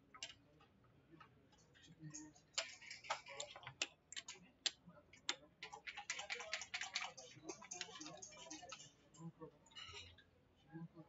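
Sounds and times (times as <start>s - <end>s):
checkers clacking on board: 2.1s - 9.0s.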